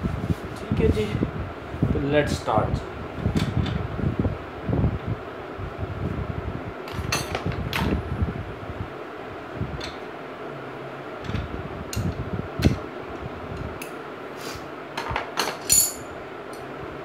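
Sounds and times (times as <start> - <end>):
fan humming: 0.0 - 17.0
metal hand tools clinking: 15.4 - 16.1.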